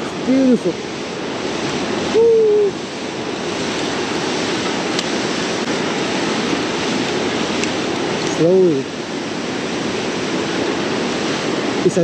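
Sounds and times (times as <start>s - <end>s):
hooting call: 2.1s - 2.8s.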